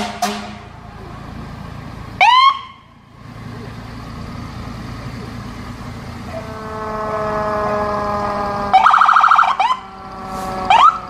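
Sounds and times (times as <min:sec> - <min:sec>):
emergency vehicle horn blast: 0:00.0 - 0:00.9, 0:02.2 - 0:03.0, 0:06.3 - 0:11.0
electronic siren warbling and whooping: 0:06.3 - 0:11.0.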